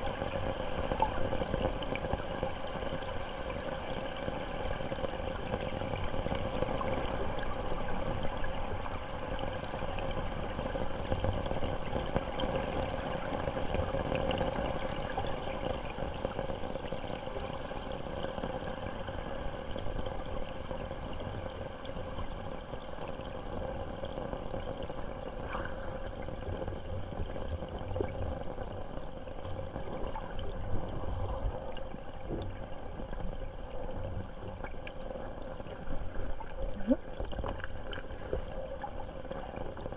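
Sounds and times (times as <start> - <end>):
muffled underwater stream rushing: 0.0 - 39.9.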